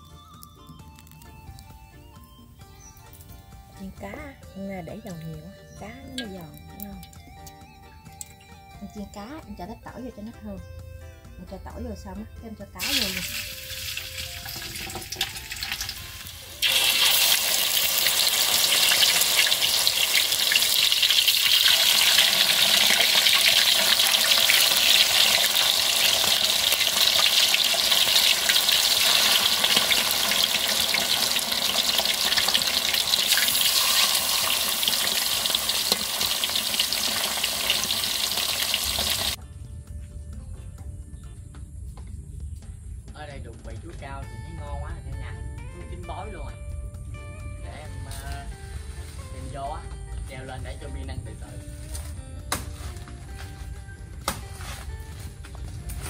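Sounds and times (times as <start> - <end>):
fish deep-frying in hot oil: 12.8 - 39.4.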